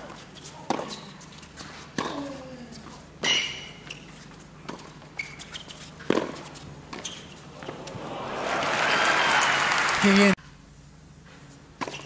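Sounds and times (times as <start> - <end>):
shoes squeaking on court: 0.0 - 8.1, 11.2 - 12.0
racket striking ball: 6.1 - 7.0
crowd cheering and applauding: 7.9 - 10.4.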